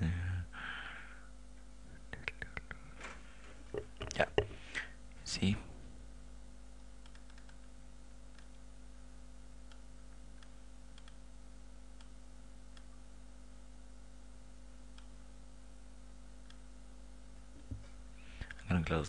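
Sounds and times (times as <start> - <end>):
low electrical hum: 0.0 - 19.0
computer mouse clicks: 7.0 - 7.7, 8.3 - 8.6, 9.6 - 11.2, 18.4 - 18.7.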